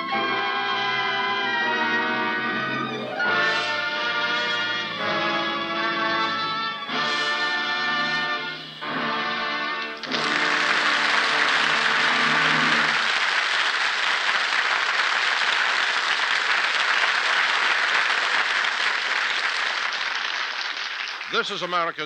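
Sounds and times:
orchestral brass chord: 0.0s - 13.1s
audience applause: 9.8s - 22.0s.

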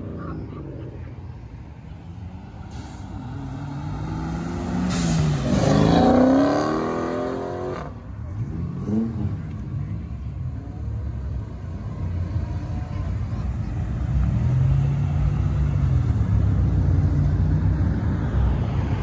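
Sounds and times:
low rumble of cars: 0.0s - 19.0s
car engine revving: 3.0s - 10.1s.

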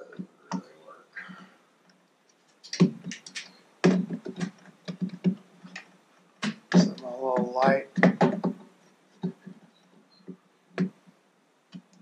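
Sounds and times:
hose fittings clicking and knocking: 2.6s - 9.6s.

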